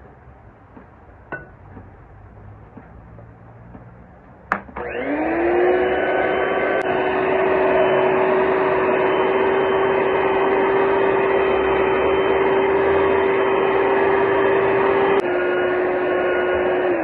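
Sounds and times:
electric hand mixer whining: 4.8 - 17.0.

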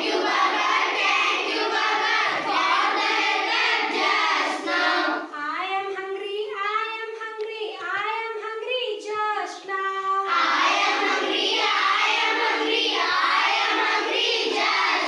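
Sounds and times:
children singing in chorus: 0.0 - 5.3, 10.3 - 15.0.

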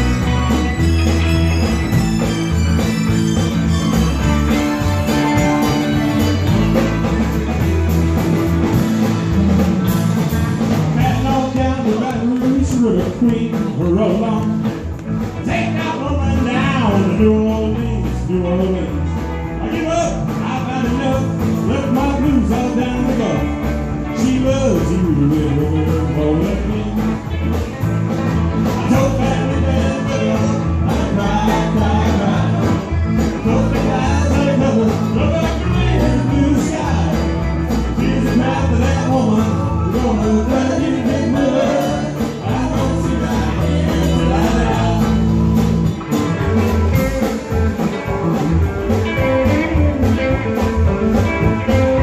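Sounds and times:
live rock band playing: 0.0 - 52.0
man singing lead vocal: 10.9 - 27.4, 28.6 - 45.7.

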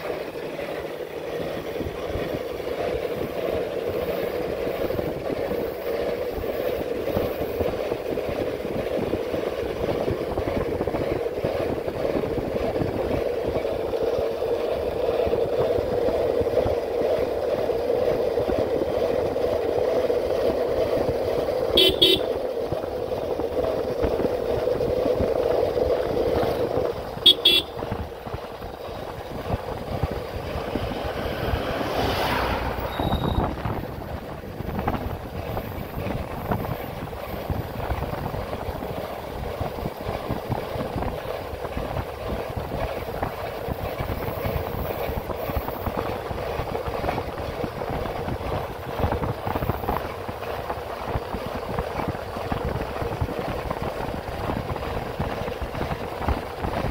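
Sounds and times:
road traffic rush: 0.0 - 56.9
vehicle horn held: 21.8 - 22.3, 27.2 - 27.8, 32.8 - 33.6
vehicle passing whoosh: 26.2 - 35.0.

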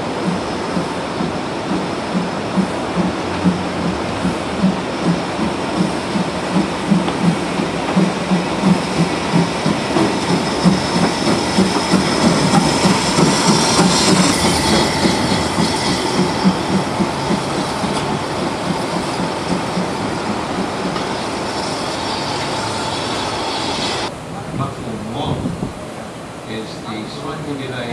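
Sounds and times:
train wheel clicks: 0.0 - 24.1
steam locomotive exhaust beats: 0.0 - 24.7
high-pitched hiss or squeal: 21.0 - 24.1.

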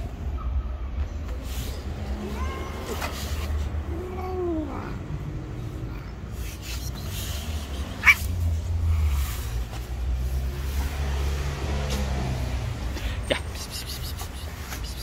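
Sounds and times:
cat meowing: 2.2 - 5.0.

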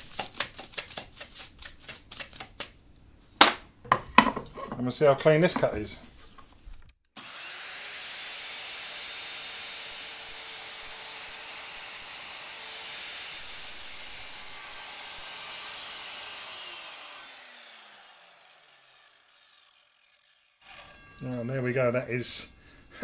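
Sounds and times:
mitre saw cutting wood: 7.2 - 21.5
saw motor winding down: 7.2 - 21.5.

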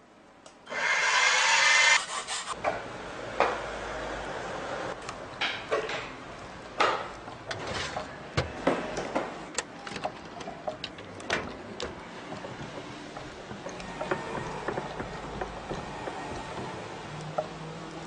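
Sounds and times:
parts clicking and knocking: 6.8 - 18.0.

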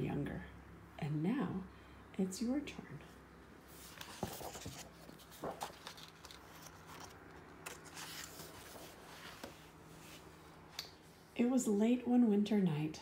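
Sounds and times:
book pages turning: 3.7 - 10.3.

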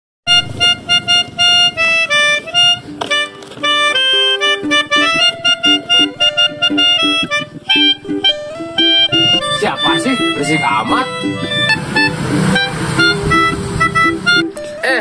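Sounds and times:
melodica playing fast tune: 0.3 - 15.0.

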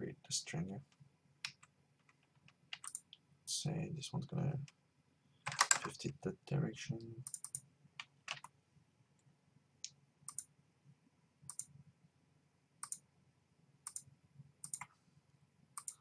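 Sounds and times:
faint low hum: 0.0 - 16.0
computer mouse clicking: 1.4 - 3.2, 7.2 - 8.5, 9.8 - 10.5, 11.5 - 11.7, 12.8 - 13.0, 13.8 - 15.0, 15.8 - 16.0.

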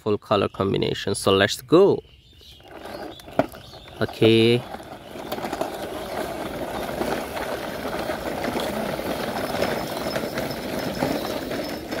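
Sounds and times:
toy trucks rattling over dirt: 2.4 - 12.0.

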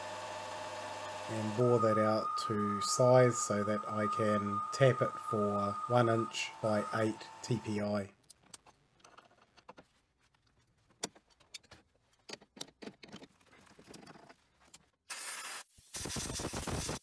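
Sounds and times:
metallic clicks and scrapes: 8.2 - 14.9.

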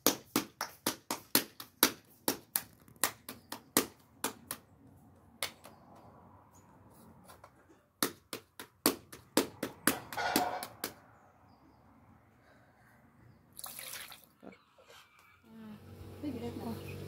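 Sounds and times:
hands patting bread dough: 0.0 - 6.1, 7.2 - 11.1.

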